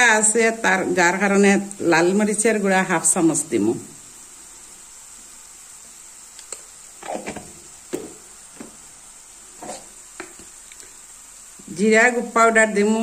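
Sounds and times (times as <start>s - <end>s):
paste sizzling in oil: 0.0s - 13.0s.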